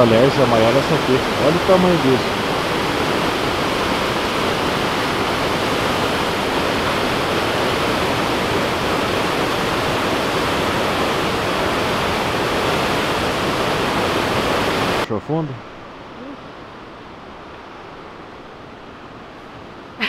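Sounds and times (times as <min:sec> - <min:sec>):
waterfall crashing: 0:00.0 - 0:15.1.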